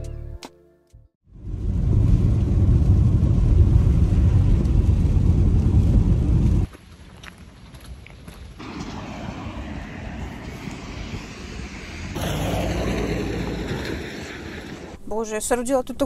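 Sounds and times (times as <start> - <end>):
car rumbling on road: 8.6 - 15.0.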